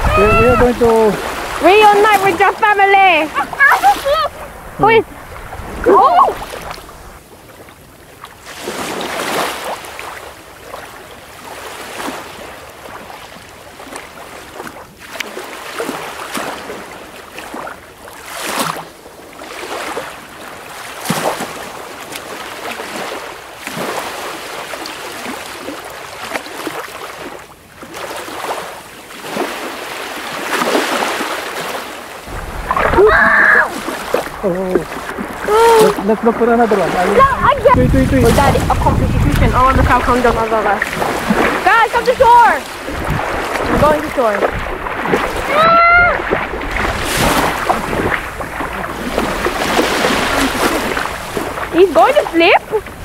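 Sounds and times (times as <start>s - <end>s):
wind buffeting microphone: 0.0s - 7.4s, 32.2s - 53.0s
shallow surf washing: 0.0s - 53.0s.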